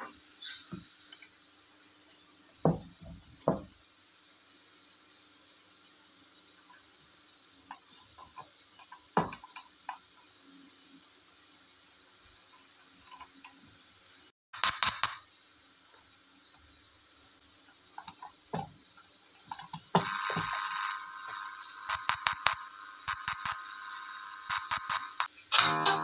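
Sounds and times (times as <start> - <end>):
high-pitched speaker whine: 14.6 - 26.0
crackling clicks and pops: 15.9 - 26.0.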